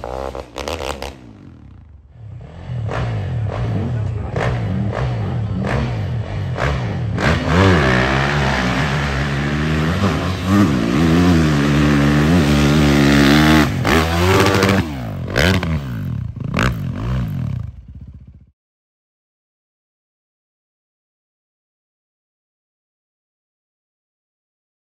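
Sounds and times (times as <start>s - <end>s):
dirt bike engine revving: 0.0s - 18.5s.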